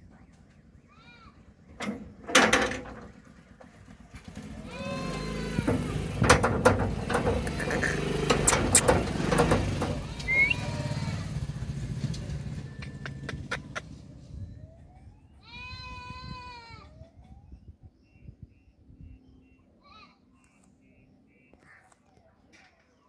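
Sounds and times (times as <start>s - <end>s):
parrot squawking and calling: 7.4s - 8.8s, 10.1s - 11.0s.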